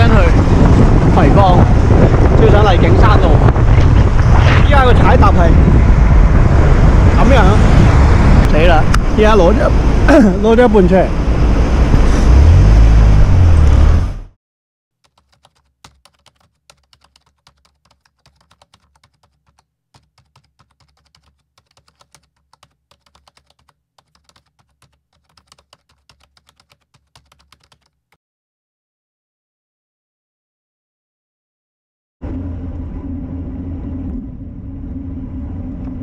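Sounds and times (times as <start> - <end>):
loud road traffic rumble: 0.0 - 14.3, 32.2 - 36.0
keyboard typing clicks: 15.0 - 28.2.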